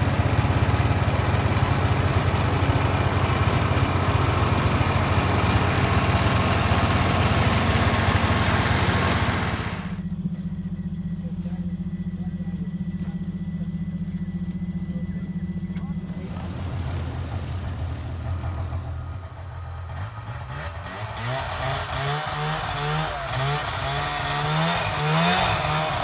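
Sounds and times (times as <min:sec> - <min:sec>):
vehicle engine running: 0:00.0 - 0:26.0
loud rushing noise: 0:06.8 - 0:10.0.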